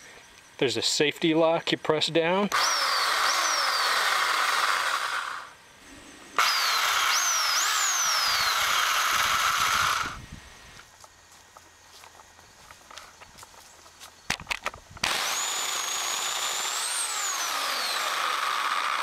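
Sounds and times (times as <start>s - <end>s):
electric pole saw running: 2.5s - 10.3s, 15.0s - 19.0s.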